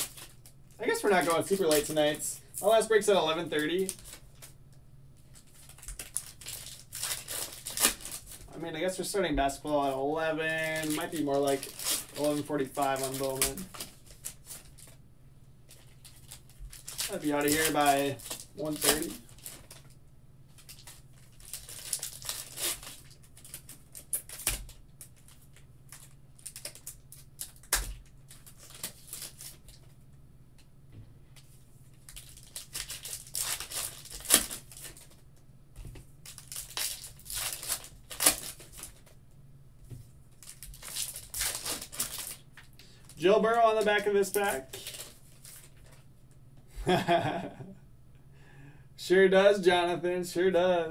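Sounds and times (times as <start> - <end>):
foil packs tearing and crinkling: 0.0 - 4.5, 5.3 - 15.0, 15.7 - 29.9, 32.0 - 35.2, 36.2 - 39.2, 40.3 - 46.0.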